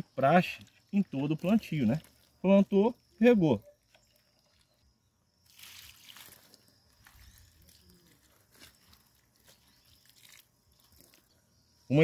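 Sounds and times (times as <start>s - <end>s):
water pattering on plant: 0.5s - 2.8s, 5.4s - 11.3s.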